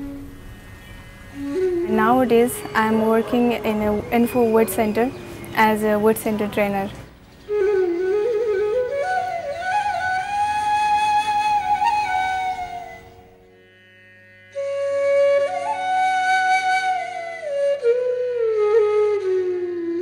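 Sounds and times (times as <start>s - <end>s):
flute melody with gliding notes: 0.0s - 6.8s, 7.4s - 20.0s
steady drone: 0.0s - 6.9s.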